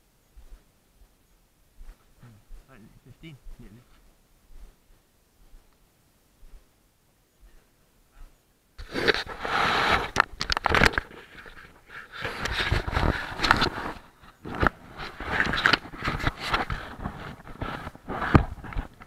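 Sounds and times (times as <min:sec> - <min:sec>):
camera handling noise: 0:08.8 - 0:16.8.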